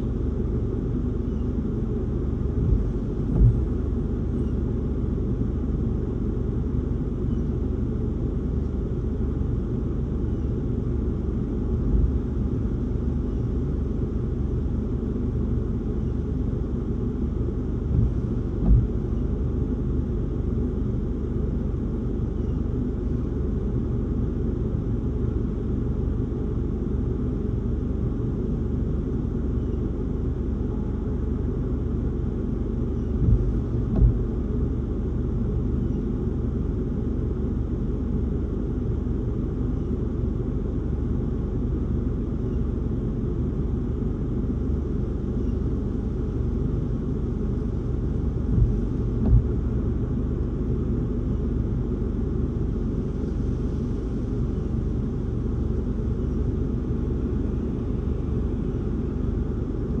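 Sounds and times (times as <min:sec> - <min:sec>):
strong wind rumbling around car: 0:00.0 - 0:29.4, 0:30.3 - 0:38.5, 0:41.2 - 1:00.0
short thumps: 0:02.6 - 0:03.9, 0:17.9 - 0:19.2, 0:33.1 - 0:34.5, 0:48.4 - 0:49.8.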